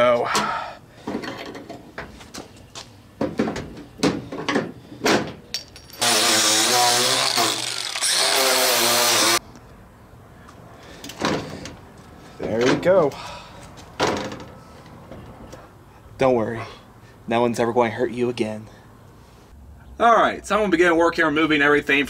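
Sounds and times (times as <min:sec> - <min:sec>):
angle grinder grinding metal: 0:06.0 - 0:09.4.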